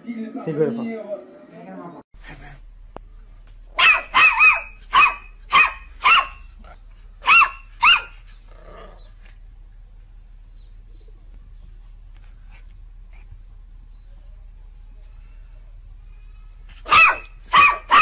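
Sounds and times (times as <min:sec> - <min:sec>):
puppy barking: 0:03.7 - 0:08.2, 0:16.8 - 0:18.0.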